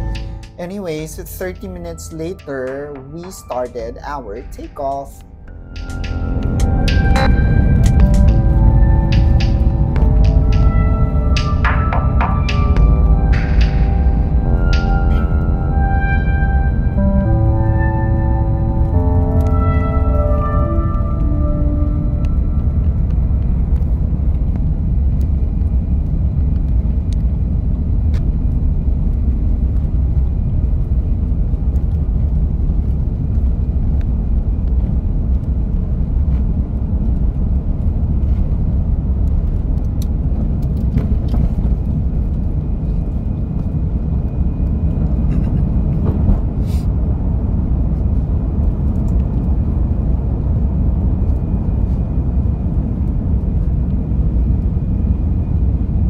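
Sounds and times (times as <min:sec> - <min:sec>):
jet engines at takeoff thrust: 0:05.8 - 0:16.0, 0:21.2 - 0:56.0
runway roll rumble: 0:20.4 - 0:55.9.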